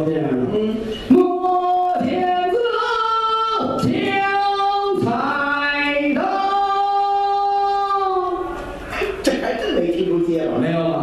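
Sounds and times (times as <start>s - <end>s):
man singing in a high voice: 0.0s - 8.4s.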